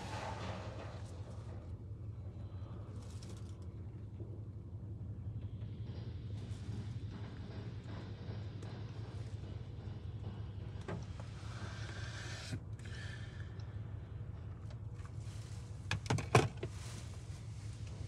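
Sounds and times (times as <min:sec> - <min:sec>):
car wash hum: 0:00.0 - 0:01.7, 0:10.9 - 0:13.6.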